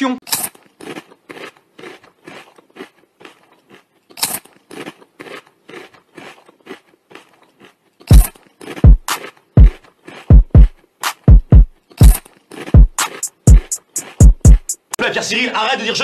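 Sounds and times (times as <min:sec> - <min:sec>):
rapid short sharp clicks: 0:10.6 - 0:12.2, 0:12.8 - 0:15.0
music: 0:12.8 - 0:15.0.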